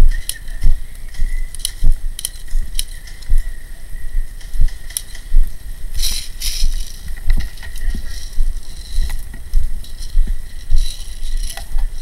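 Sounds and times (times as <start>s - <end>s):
rustling through brush: 0.0s - 12.0s
sharp clicks: 0.2s - 3.5s.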